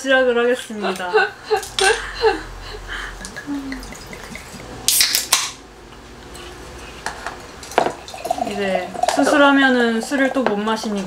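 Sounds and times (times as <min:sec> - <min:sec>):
can hissing: 0:03.8 - 0:05.5.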